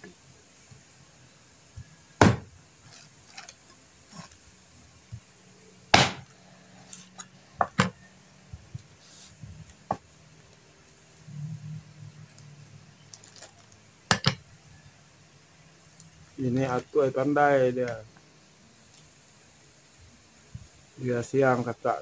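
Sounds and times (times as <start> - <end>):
knife chopping on cutting board: 2.2 - 2.5, 6.0 - 6.2.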